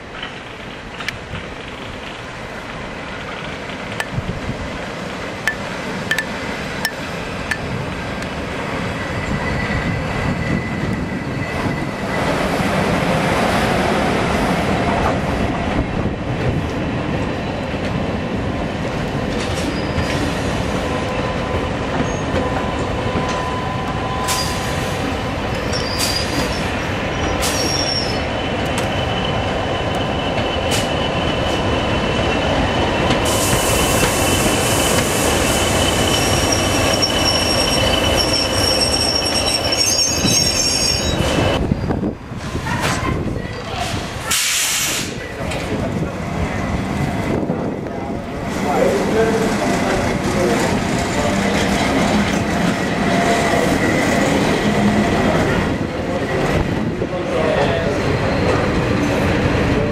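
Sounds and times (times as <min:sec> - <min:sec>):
train wheels squealing on rails: 0:05.5 - 0:13.3, 0:19.0 - 0:59.9
broad hiss: 0:44.2 - 0:45.2.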